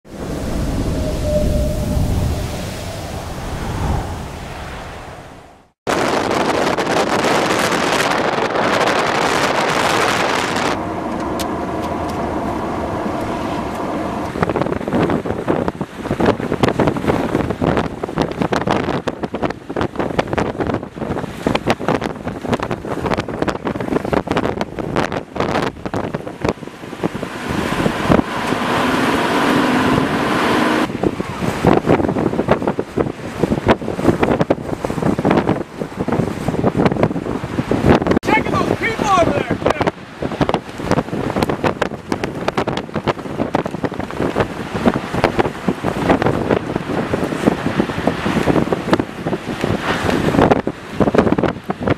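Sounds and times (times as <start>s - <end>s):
strong wind blasting microphone: 0.0s - 51.9s
car passing close by: 0.1s - 5.7s, 9.6s - 14.8s.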